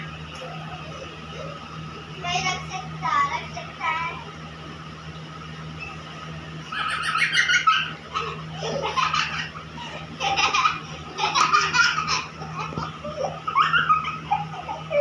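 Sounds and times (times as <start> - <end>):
baby and girl giggling: 6.7 - 15.0.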